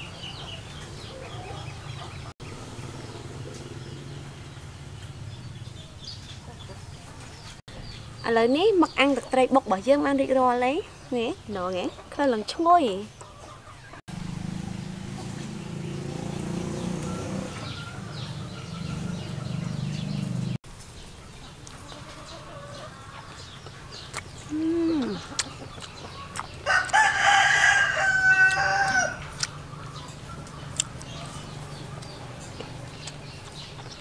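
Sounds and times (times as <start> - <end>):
rooster crowing: 17.0 - 19.1, 26.6 - 29.3.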